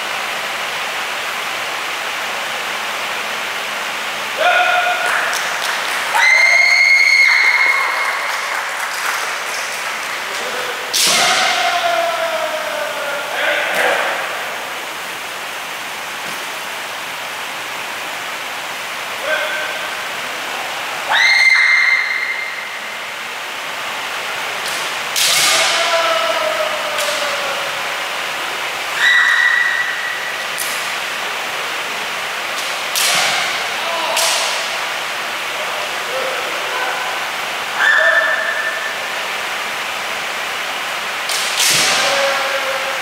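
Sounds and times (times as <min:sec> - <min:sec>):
high-pitched shout: 0:06.1 - 0:08.2, 0:11.1 - 0:13.3, 0:21.1 - 0:22.5, 0:25.4 - 0:27.6, 0:29.0 - 0:30.0, 0:37.8 - 0:38.7
bamboo sword strikes cracking: 0:10.9 - 0:11.5, 0:24.6 - 0:25.7, 0:32.9 - 0:33.5, 0:41.3 - 0:42.0.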